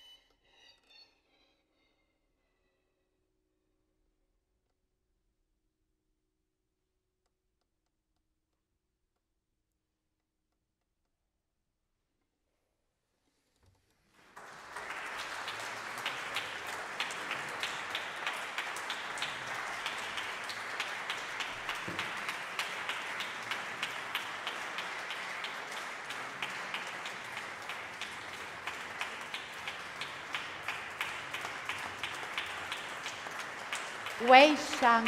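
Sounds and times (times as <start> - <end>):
audience applause: 14.1 - 35.0.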